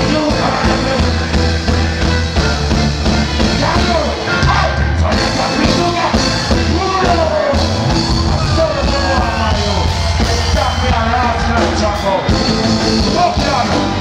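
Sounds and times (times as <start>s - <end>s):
reggae band playing loudly: 0.0s - 14.0s
man singing into a microphone: 3.8s - 7.6s.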